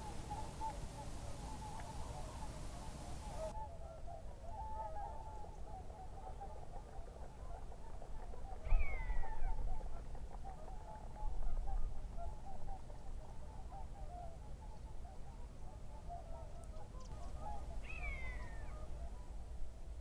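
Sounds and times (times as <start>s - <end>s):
distant bird calls: 0.0s - 3.6s, 8.5s - 9.6s, 15.9s - 19.4s.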